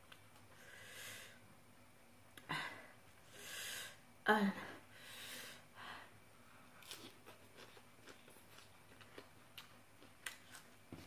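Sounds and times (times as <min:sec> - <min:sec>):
person chewing food: 0:06.7 - 0:11.0.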